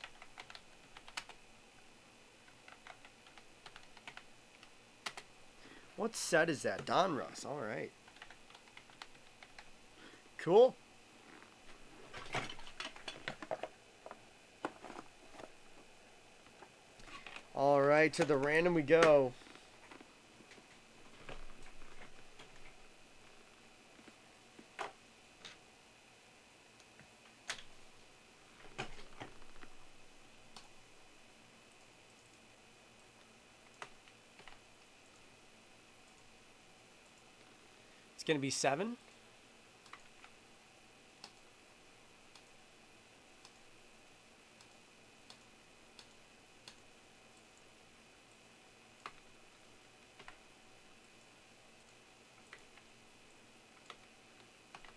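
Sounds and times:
computer mouse clicks: 0.0 - 1.4, 2.4 - 5.3, 8.0 - 9.7, 33.7 - 35.2, 39.8 - 40.4, 41.2 - 41.5, 43.4 - 43.6, 44.6 - 46.9, 49.0 - 49.3, 50.2 - 50.4, 53.7 - 54.9
faint computer clicks: 0.0 - 1.4, 33.7 - 35.3, 41.2 - 41.5.

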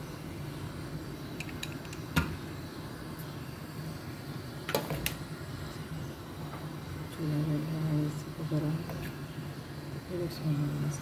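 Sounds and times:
pot boiling with low rumble: 0.0 - 11.0.

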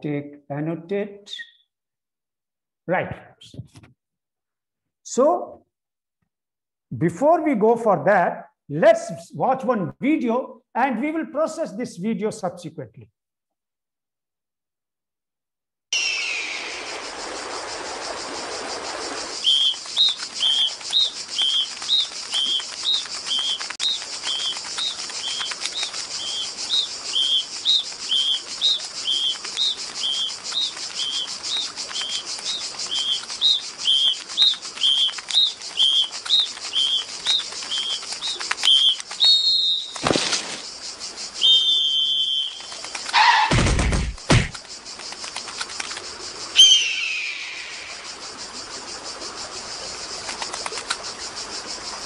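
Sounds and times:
steady high hiss: 16.0 - 43.2, 44.5 - 52.0.

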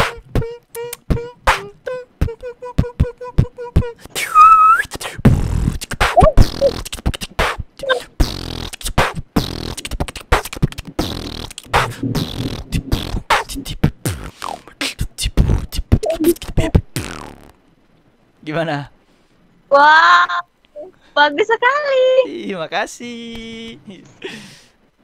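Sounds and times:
person beatboxing: 0.0 - 17.5.

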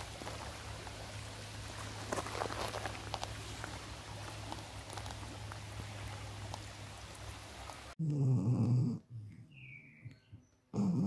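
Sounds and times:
river water over stones: 0.0 - 8.0
dog grunting: 10.7 - 11.0.

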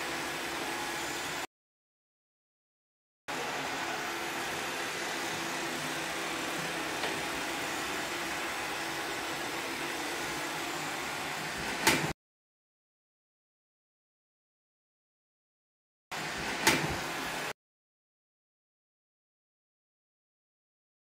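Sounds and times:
robot vacuum whirring: 3.4 - 11.9.

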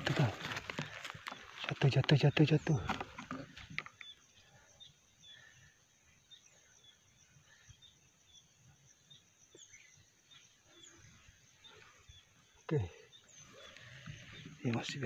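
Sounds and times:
distant birds chirping: 0.0 - 15.0.

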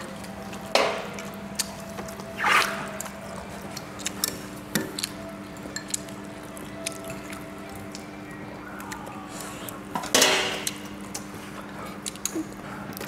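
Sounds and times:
chewing and slurping: 1.2 - 8.1
chopsticks clicking on bowls: 3.7 - 6.2, 12.0 - 12.4.

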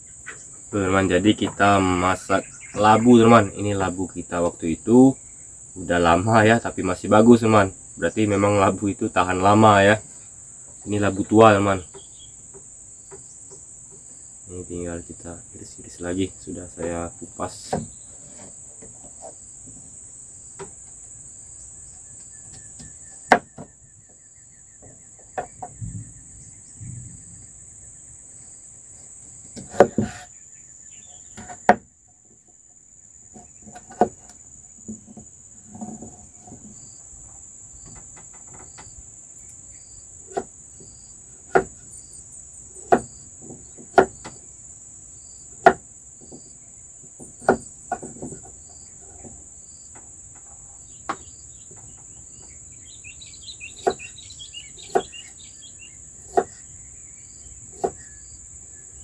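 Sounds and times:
crickets chirping: 0.0 - 59.0.

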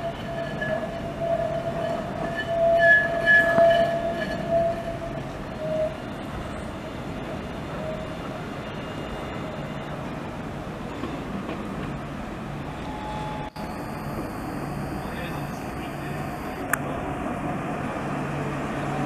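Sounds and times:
tram rumbling on track: 0.0 - 19.0
wavering high tone: 12.8 - 16.7.

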